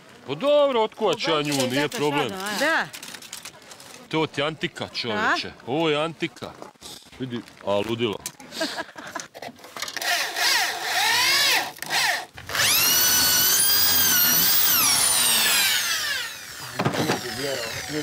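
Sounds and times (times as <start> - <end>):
power tool motor whine: 9.9 - 18.0.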